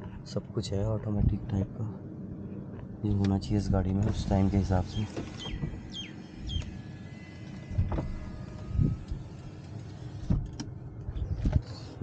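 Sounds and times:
power window motor whine: 4.0 - 11.7.

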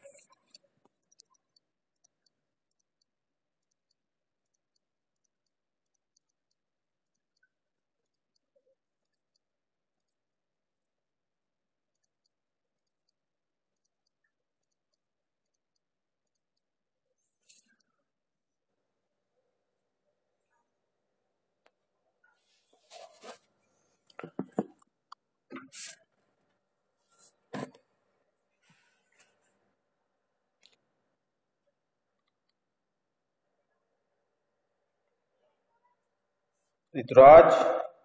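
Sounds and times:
faint high-pitched ticks: 0.0 - 10.9, 11.9 - 18.0.

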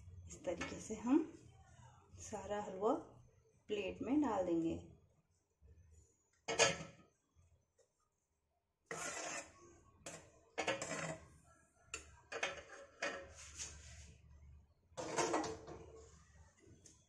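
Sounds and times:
metal spoon scraping and clinking: 8.9 - 11.3, 12.3 - 13.6.

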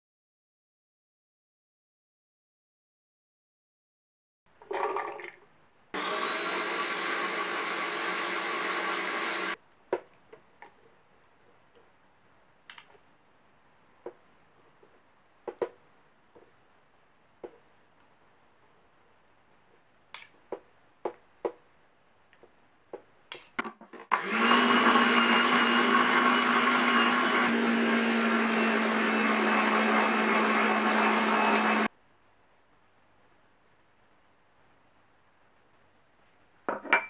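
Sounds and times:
food processor motor running: 6.0 - 9.6, 24.1 - 31.9.

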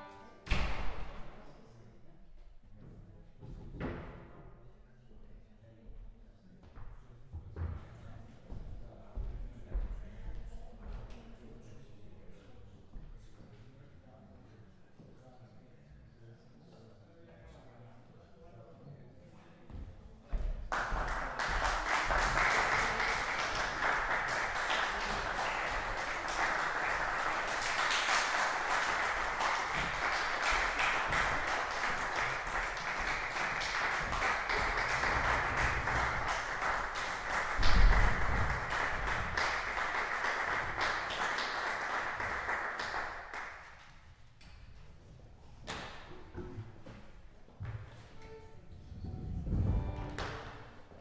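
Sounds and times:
audience applauding: 20.7 - 43.8.

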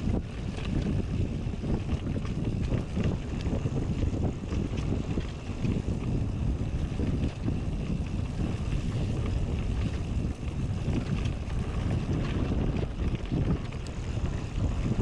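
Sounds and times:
bike tyres rolling over dirt: 0.0 - 15.0
clicks and rattles over bumps: 0.0 - 15.0
wind buffeting microphone: 0.0 - 15.0.

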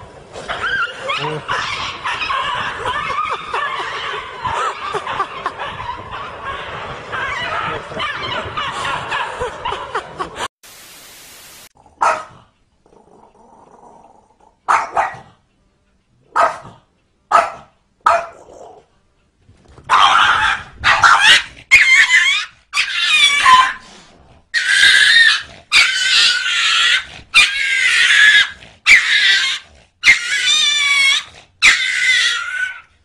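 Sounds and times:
dog squealing and yelping: 0.4 - 9.9, 19.9 - 23.8, 24.6 - 32.9
small dog barking: 12.0 - 12.5, 14.7 - 15.3, 16.3 - 18.4, 19.9 - 22.0.

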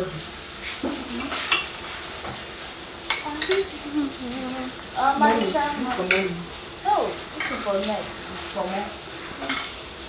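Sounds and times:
frying hiss: 0.0 - 10.0
spoon clinking against pot: 3.1 - 3.7, 5.4 - 6.3.

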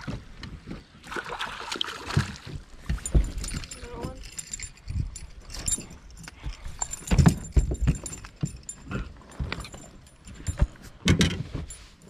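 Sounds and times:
knocks and thumps: 2.1 - 4.2, 6.4 - 11.8.

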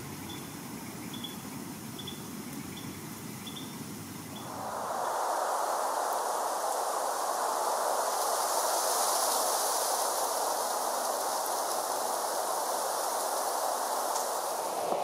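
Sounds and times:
continuous rushing hiss: 0.0 - 15.0
faint high steady hiss: 0.0 - 15.0.

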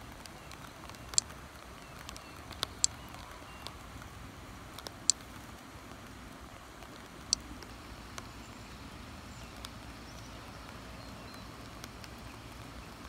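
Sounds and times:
sharp drips tapping: 0.0 - 3.8
light rain patter: 0.0 - 13.0.

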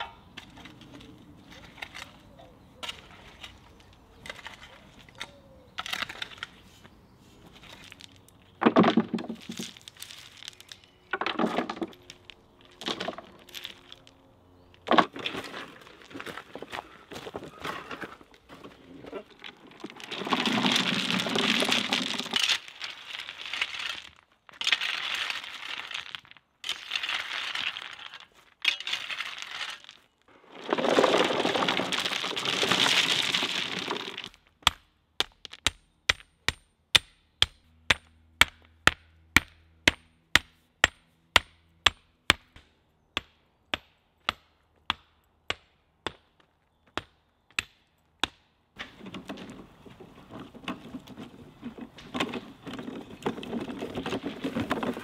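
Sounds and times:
stones pouring from wheelbarrow: 7.4 - 14.1, 14.8 - 34.4, 48.9 - 55.0
sledgehammer tamping stones: 14.8 - 46.3, 46.9 - 55.0.

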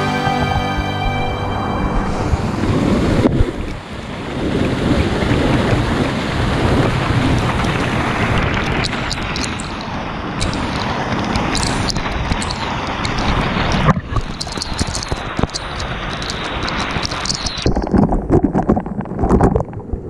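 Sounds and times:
river water rushing and splashing: 0.0 - 18.0
droplet ticks on microphone: 6.8 - 19.8.

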